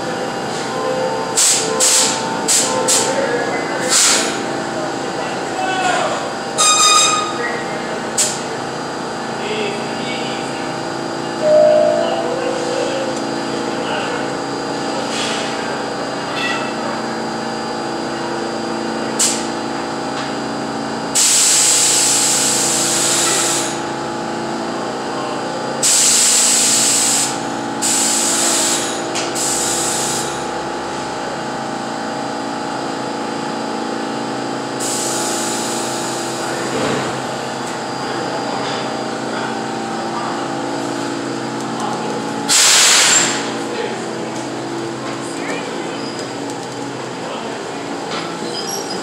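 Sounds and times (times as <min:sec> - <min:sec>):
subway train equipment humming: 0:07.2 - 0:21.0.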